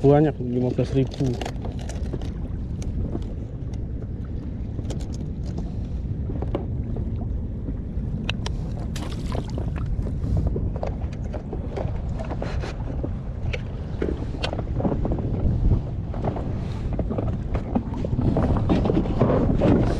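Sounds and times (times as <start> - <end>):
water lapping against boat: 0.0 - 19.9
wind buffeting microphone: 0.0 - 19.9.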